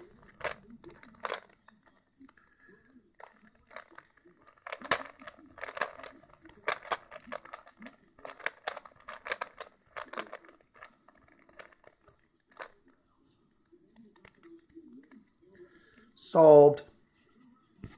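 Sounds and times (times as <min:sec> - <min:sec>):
puzzle cube clicking: 0:00.0 - 0:16.1.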